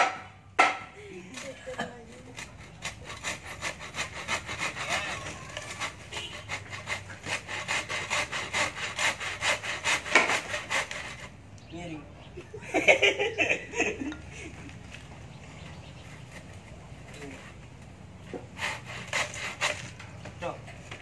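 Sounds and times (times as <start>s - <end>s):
hand saw cutting wood: 0.0s - 11.4s, 16.0s - 21.0s.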